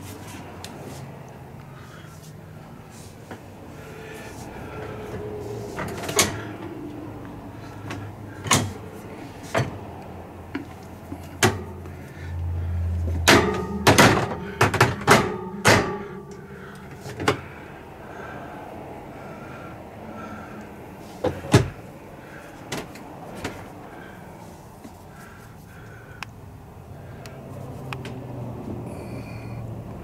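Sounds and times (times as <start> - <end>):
catches and hinges knocking: 13.2 - 16.4.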